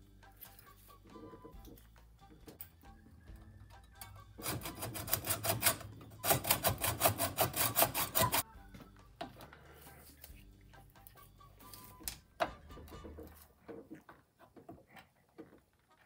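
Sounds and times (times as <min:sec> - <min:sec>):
hacksaw cutting metal: 0:04.4 - 0:08.4.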